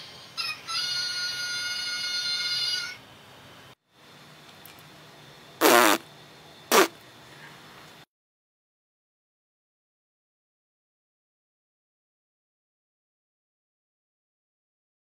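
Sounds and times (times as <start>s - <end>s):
fart-like raspy blasts: 5.6s - 6.0s, 6.7s - 7.0s.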